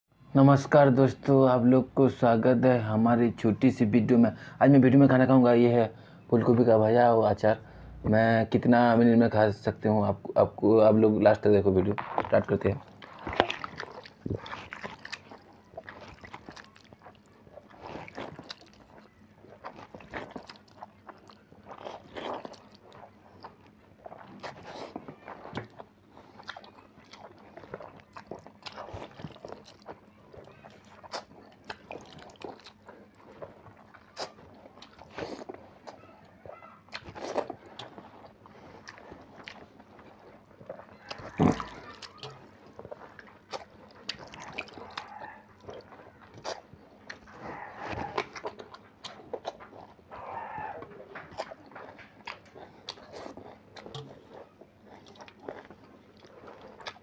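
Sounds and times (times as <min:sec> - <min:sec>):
wet chewing and slurping: 0:11.9 - 0:57.0.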